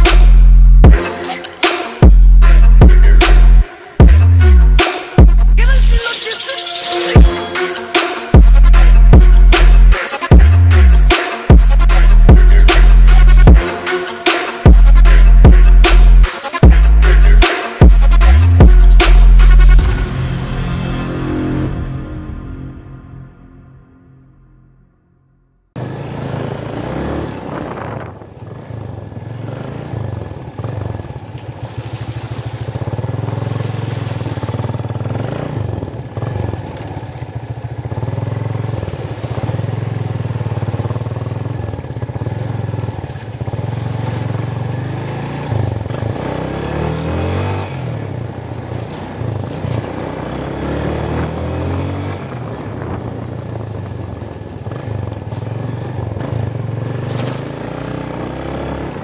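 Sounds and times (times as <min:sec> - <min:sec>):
motorcycle engine running: 0:00.0 - 0:01.0, 0:01.9 - 0:05.9, 0:08.3 - 0:13.7, 0:14.6 - 0:20.7, 0:25.8 - 0:59.0
wind on microphone: 0:27.3 - 0:28.7, 0:52.1 - 0:54.4.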